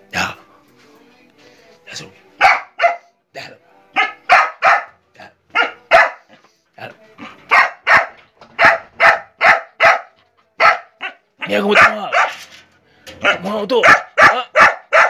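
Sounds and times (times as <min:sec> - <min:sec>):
dogs barking: 0:02.4 - 0:03.1, 0:04.0 - 0:06.5, 0:07.2 - 0:12.5, 0:13.2 - 0:15.0.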